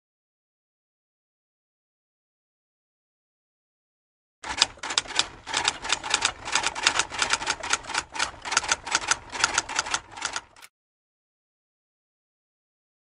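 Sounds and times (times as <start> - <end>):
typewriter keys clacking: 4.4 - 10.7.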